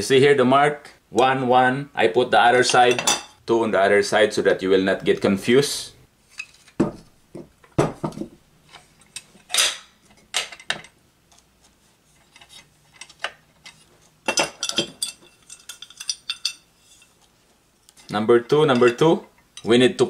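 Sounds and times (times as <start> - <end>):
metal parts clinking on workbench: 12.9 - 16.7.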